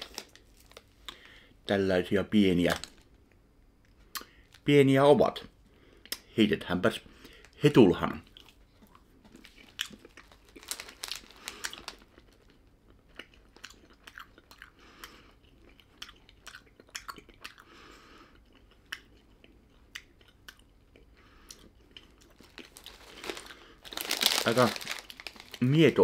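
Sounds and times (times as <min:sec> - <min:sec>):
crunchy snack chewing: 0:08.3 - 0:25.6.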